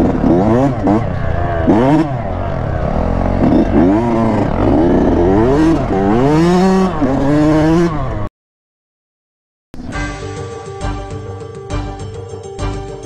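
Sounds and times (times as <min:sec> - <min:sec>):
dirt bike engine revving: 0:00.0 - 0:08.3.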